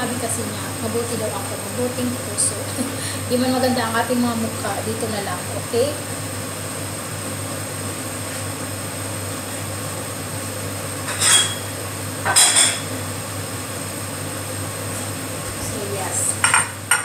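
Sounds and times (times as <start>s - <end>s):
steady low hum: 0.0s - 17.0s
crockery clattering: 12.3s - 12.8s.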